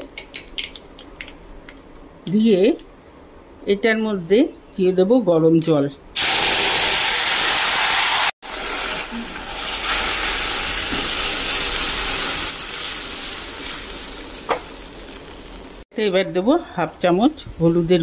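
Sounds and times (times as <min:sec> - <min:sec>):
water poured into hot oil: 0:06.2 - 0:14.2
loud sizzling hiss: 0:06.2 - 0:15.8.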